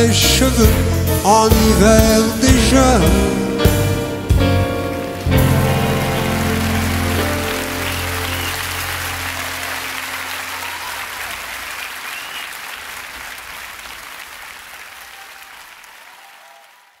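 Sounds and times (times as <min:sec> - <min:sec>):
audience applauding: 0:04.7 - 0:17.0
audience whistling: 0:05.4 - 0:14.0.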